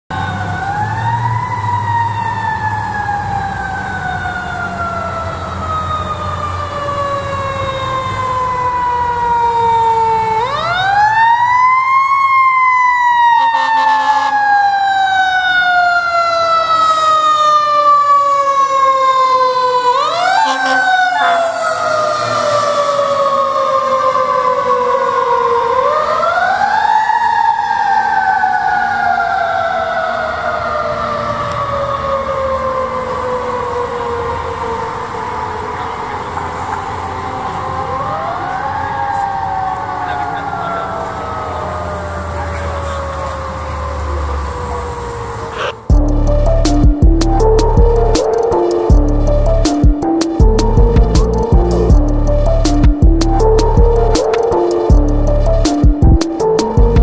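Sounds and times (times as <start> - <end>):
fire engine siren wailing: 0.0 - 57.0
truck engine rumbling: 19.9 - 24.0, 33.0 - 57.0.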